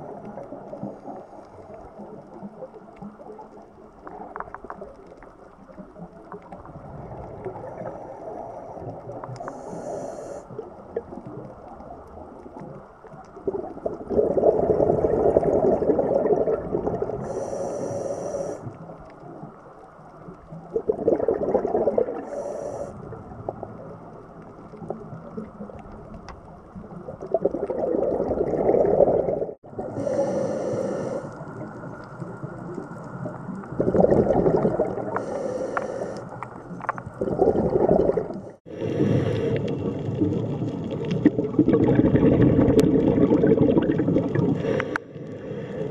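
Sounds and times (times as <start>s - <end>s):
regulator hissing inhale: 9.4s - 10.6s, 17.2s - 18.8s, 22.2s - 23.1s, 29.9s - 31.6s, 35.1s - 36.6s, 38.6s - 39.8s, 44.5s - 45.9s
bubbling exhaled air: 13.4s - 18.8s, 20.6s - 23.8s, 26.8s - 45.9s.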